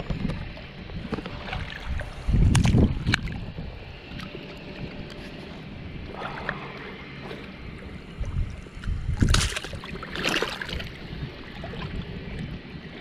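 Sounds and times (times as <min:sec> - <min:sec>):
person wading through water: 0:01.0 - 0:13.0
loud water splashes: 0:09.1 - 0:11.0.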